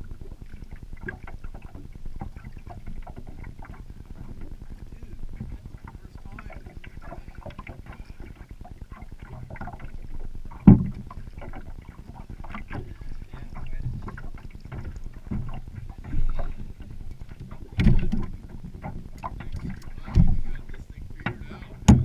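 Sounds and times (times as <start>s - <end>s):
gear clunking in aluminum boat: 10.6s - 11.7s, 12.5s - 20.6s, 21.2s - 22.0s.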